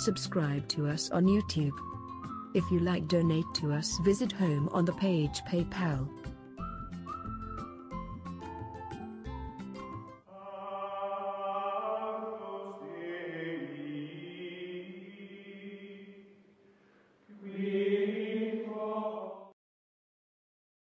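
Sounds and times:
chant-like voices singing: 10.3 - 16.4, 17.3 - 19.6.

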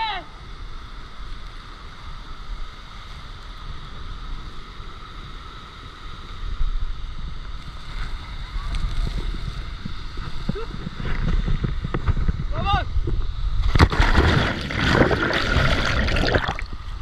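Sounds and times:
wind rumbling on microphone: 0.2 - 17.0
fast-flowing river: 14.0 - 16.7.

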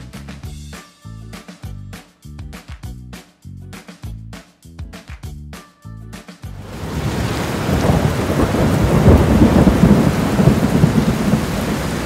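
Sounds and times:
heavy rain pouring: 6.6 - 12.0
thunder rumbling: 6.7 - 12.0.

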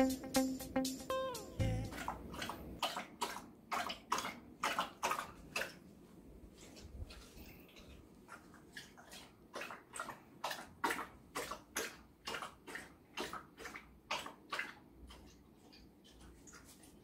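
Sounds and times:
dog lapping water: 1.9 - 5.9, 6.5 - 17.0.

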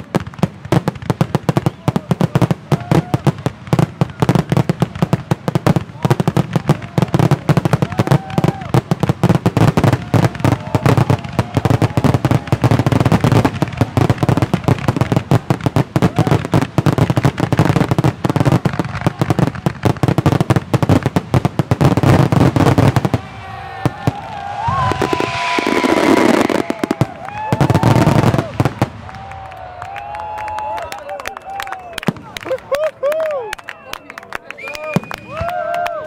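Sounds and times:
fireworks bangs and crackles: 0.0 - 33.2, 34.8 - 35.9
fireworks hiss with whistles: 1.4 - 29.1.

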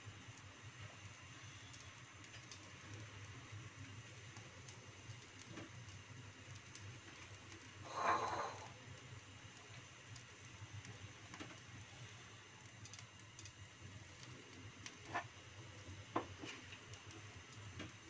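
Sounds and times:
gas burner humming: 0.0 - 18.0
soft ticks: 1.6 - 7.8, 8.6 - 11.8, 12.6 - 13.6.

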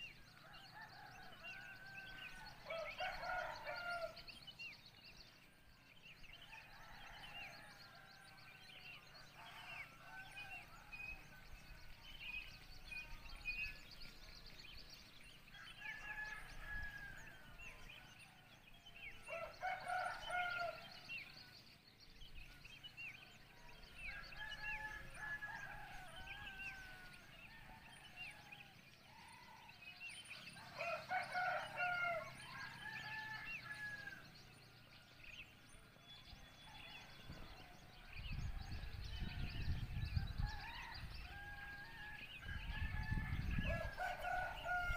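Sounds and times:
small birds chirping: 0.0 - 44.9
roosters crowing: 0.6 - 4.2, 19.2 - 21.1, 30.5 - 34.3, 38.9 - 44.9.

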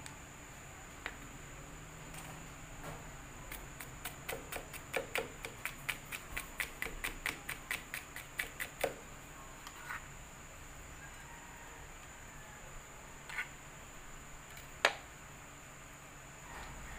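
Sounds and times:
knife chopping on cutting board: 3.8 - 9.0.

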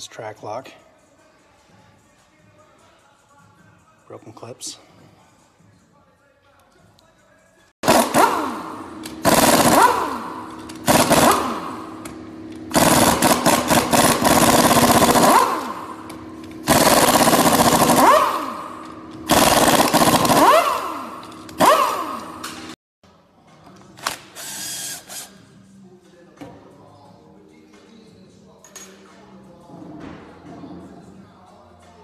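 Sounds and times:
impact wrench bursts: 7.8 - 22.8, 24.0 - 25.4.

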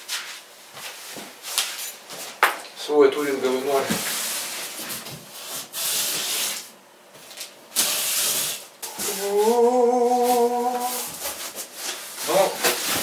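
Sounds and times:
man humming: 8.8 - 11.2.

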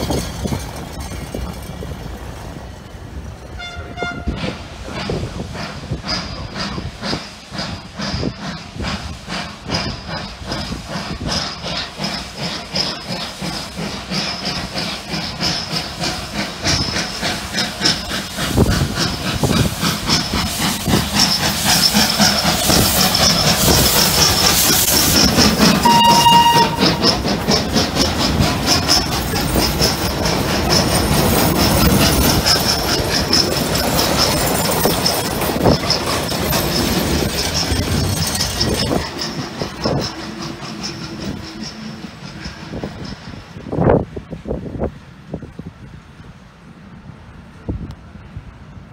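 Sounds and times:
steam hissing: 0.0 - 47.0
steam locomotive exhaust chuffing: 0.0 - 48.9
train whistle toot: 3.6 - 4.4, 25.8 - 27.1.

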